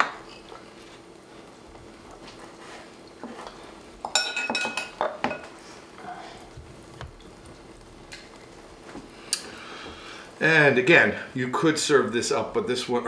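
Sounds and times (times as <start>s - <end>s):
glassware and bar tools clinking: 4.0s - 5.5s.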